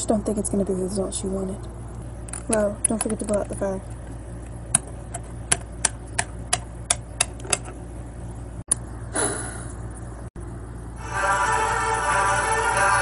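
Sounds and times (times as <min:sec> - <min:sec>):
music: 0:11.0 - 0:13.0.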